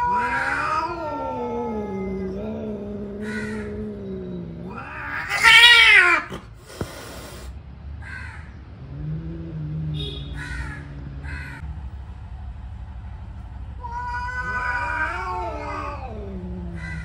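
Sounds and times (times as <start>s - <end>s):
cat yowling: 0.0s - 6.4s, 13.8s - 17.0s
cat hissing: 0.0s - 11.6s, 13.8s - 17.0s
cats growling: 0.0s - 11.6s, 13.7s - 17.0s.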